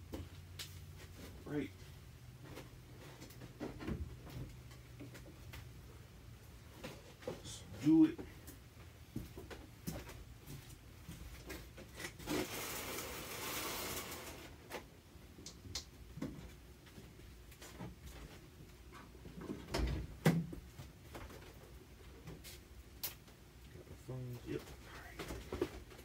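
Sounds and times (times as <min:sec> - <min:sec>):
box scraping across floor: 0:12.2 - 0:14.6.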